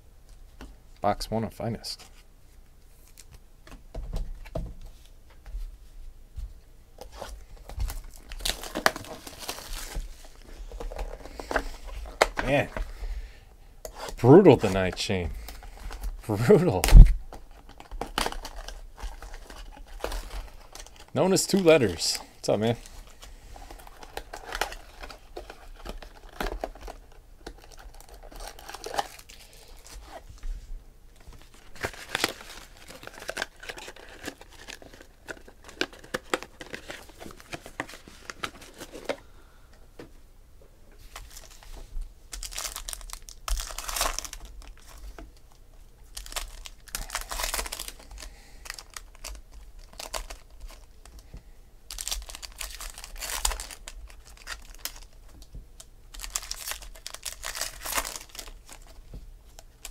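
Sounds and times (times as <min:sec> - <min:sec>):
wrappers crinkling: 0:14.0 - 0:30.2, 0:31.3 - 0:39.1, 0:42.3 - 0:45.5, 0:46.1 - 0:51.2, 0:51.9 - 0:59.9.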